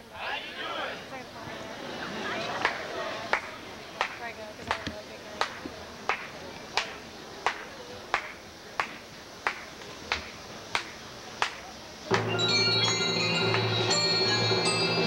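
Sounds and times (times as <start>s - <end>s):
marching band with brass chords: 12.1s - 15.0s.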